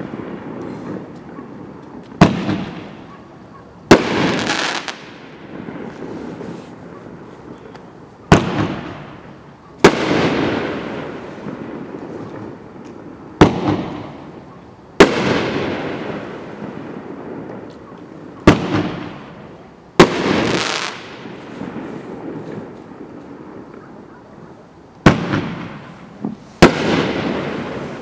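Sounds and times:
firework lift shot: 25.0s - 28.0s.

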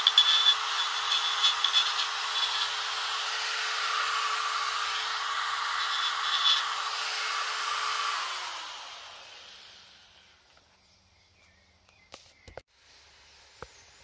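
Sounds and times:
rotary tool grinding wood: 0.0s - 10.6s.

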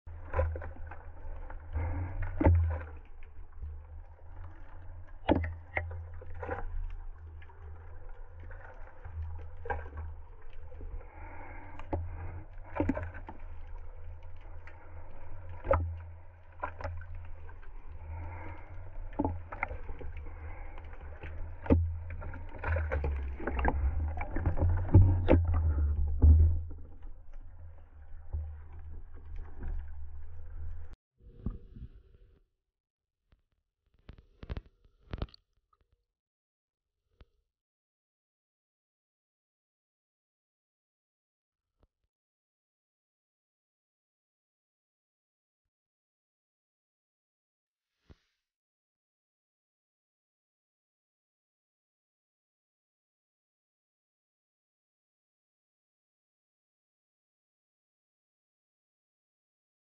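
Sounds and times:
muffled underwater rumble: 0.1s - 32.4s.

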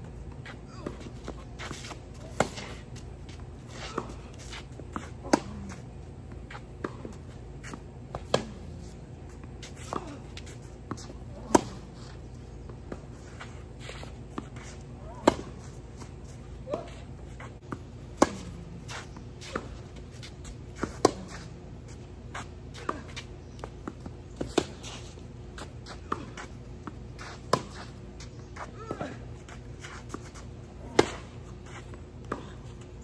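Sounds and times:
tennis racket hitting ball: 6.8s - 8.9s, 10.9s - 11.9s, 14.4s - 15.7s, 30.8s - 31.4s.

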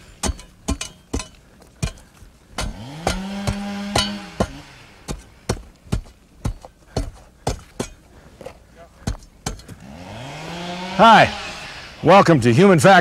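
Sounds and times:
digging tools chopping ground: 0.0s - 10.6s
pitched drone: 9.8s - 12.4s.

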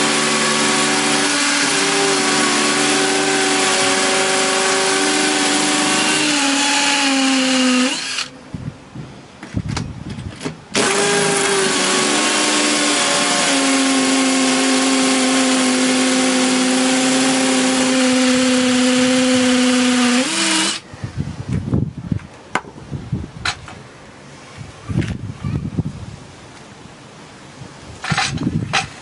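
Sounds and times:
drills grinding into concrete: 0.0s - 8.3s, 10.8s - 20.8s.

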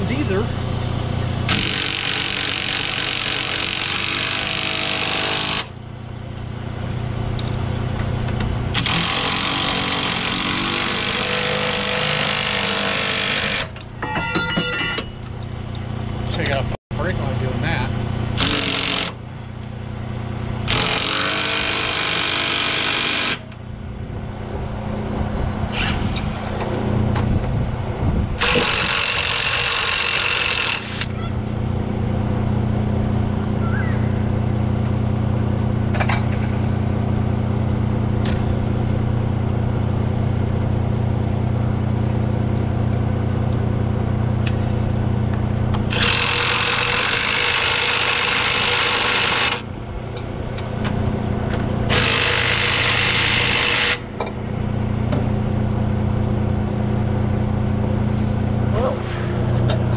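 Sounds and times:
impact wrench hammering bolts: 12.6s - 15.4s.

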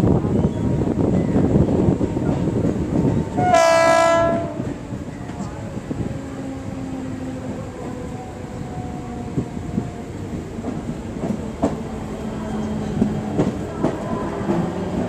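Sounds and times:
train rumble and hum: 0.0s - 15.0s
train wheels clacking on track: 6.9s - 15.0s.

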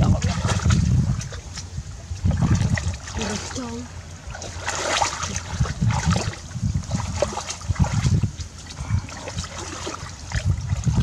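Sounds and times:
muddy water sloshing and splashing: 0.0s - 11.0s.

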